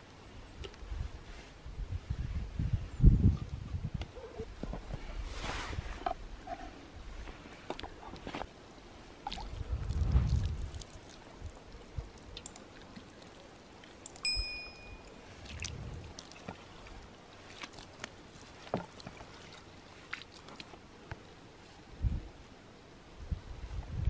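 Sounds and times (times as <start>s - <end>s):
wet squishes of rubbing turkey: 9.2s - 14.0s, 15.4s - 20.8s
ringing clink: 14.2s - 15.1s.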